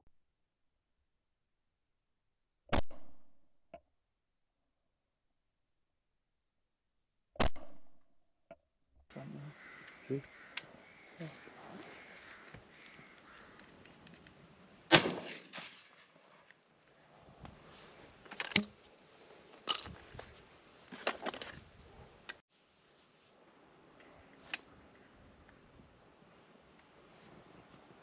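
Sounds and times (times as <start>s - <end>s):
shotgun firing: 14.9s - 16.2s.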